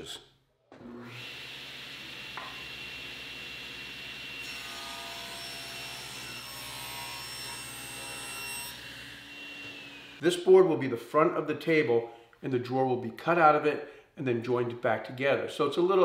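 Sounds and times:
table saw blade whine: 0.8 - 10.2.

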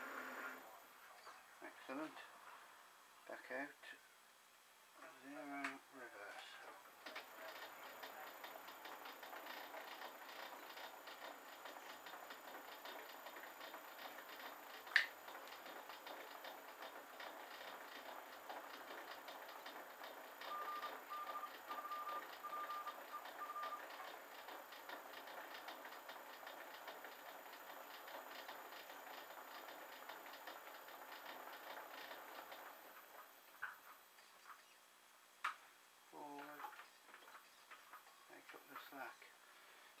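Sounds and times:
lathe mechanical ticking: 7.0 - 33.3.

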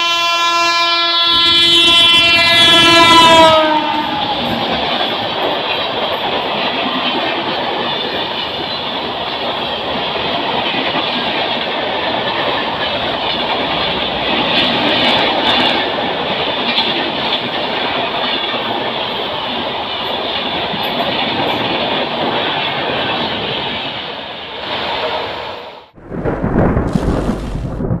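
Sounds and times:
train wheels rushing on rails: 1.0 - 26.4
loud low rumble: 26.0 - 28.0.

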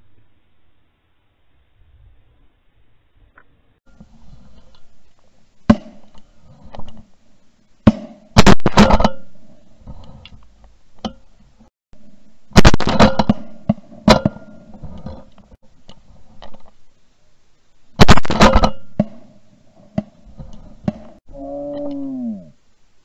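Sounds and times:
shotgun shots: 7.9 - 9.1, 12.6 - 14.2, 18.0 - 18.8.

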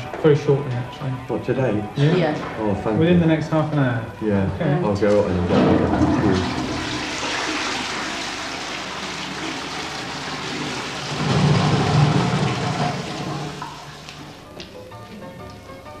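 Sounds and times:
toilet flushing: 5.4 - 14.4.

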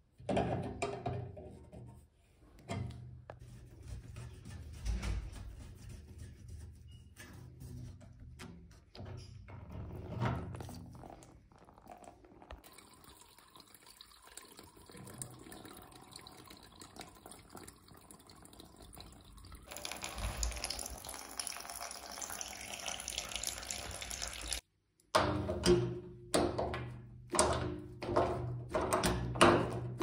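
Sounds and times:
water splashing into bucket: 11.1 - 24.6.

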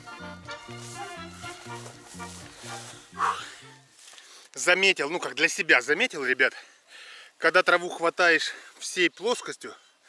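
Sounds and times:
music with bouncing bass line: 0.0 - 3.9.

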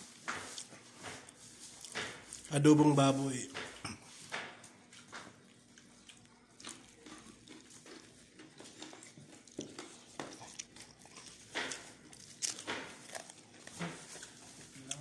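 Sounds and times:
rustles and clicks of hands picking food: 0.0 - 15.0.

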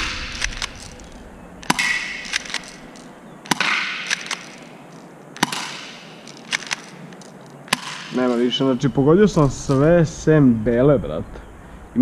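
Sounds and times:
airsoft pistol shots: 0.0 - 4.7, 5.4 - 7.0, 7.7 - 8.6.

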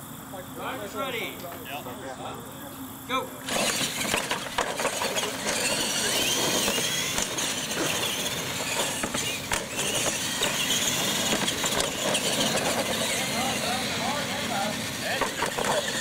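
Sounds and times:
toy truck motors whining: 3.4 - 16.0
tyre noise: 3.4 - 16.0.

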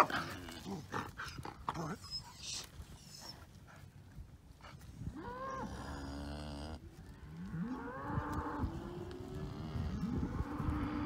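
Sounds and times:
cattle mooing: 5.2 - 11.0.

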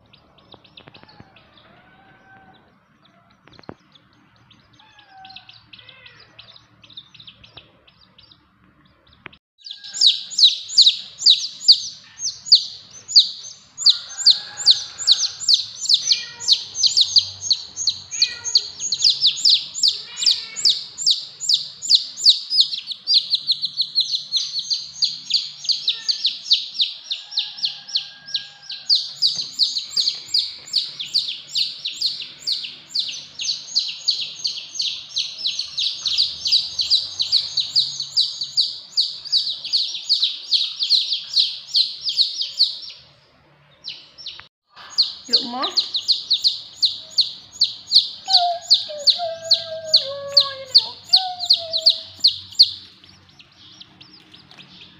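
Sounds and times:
high-pitched bird chirping: 0.0 - 43.1, 43.7 - 54.9.

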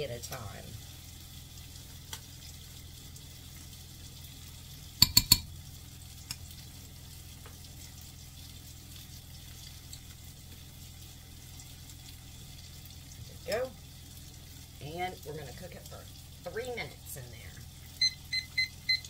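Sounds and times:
batter sizzling in hot oil: 0.0 - 19.0
metal spoon knocking: 5.0 - 5.5.

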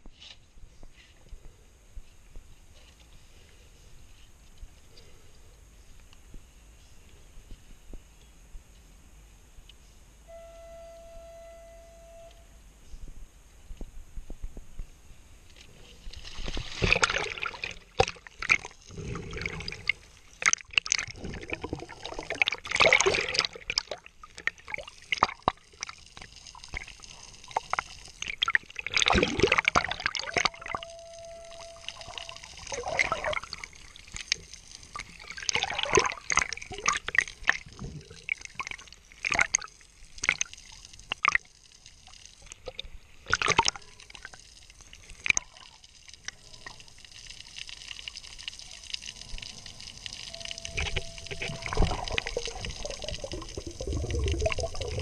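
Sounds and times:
faint steady tone: 0.0 - 55.0
water splashing and sloshing: 15.4 - 55.0
underwater bubbling: 16.0 - 55.0.

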